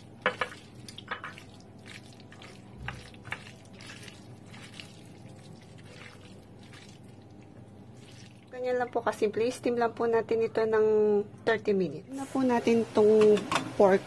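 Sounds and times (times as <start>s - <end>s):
wet squishing of hand mixing meat: 0.0s - 8.6s.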